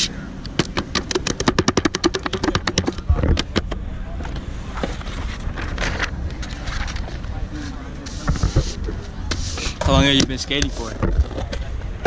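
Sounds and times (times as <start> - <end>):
scrapes on skateboard: 4.4 - 11.7
grip tape scratchy strokes: 7.6 - 9.9.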